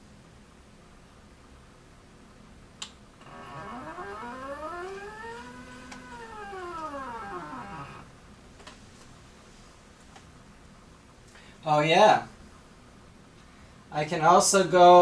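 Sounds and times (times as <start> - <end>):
stepper motors whining: 3.2 - 8.1.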